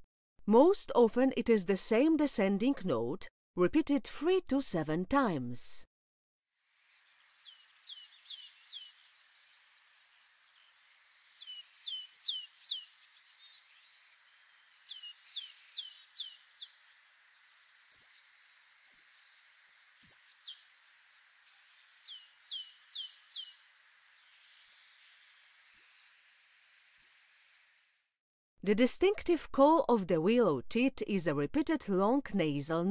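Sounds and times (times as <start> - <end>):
faint background hiss: 6.6 - 28.0.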